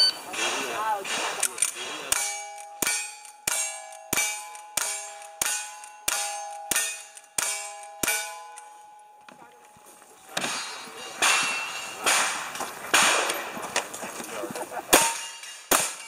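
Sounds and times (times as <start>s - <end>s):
metallic ring of steel target: 2.1s - 9.0s, 10.4s - 12.4s, 15.0s - 16.0s
rifle shots: 10.4s - 13.9s, 14.9s - 16.0s.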